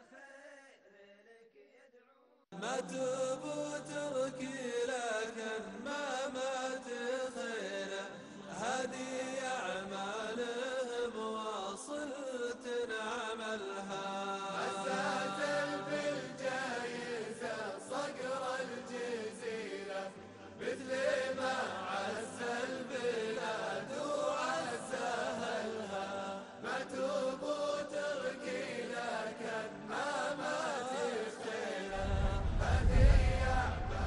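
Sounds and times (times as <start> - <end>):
deep low rumble: 31.9 - 34.0.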